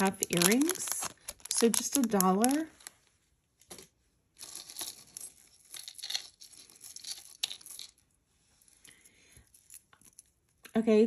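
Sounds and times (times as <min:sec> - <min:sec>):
packaging rustling: 0:00.0 - 0:03.1.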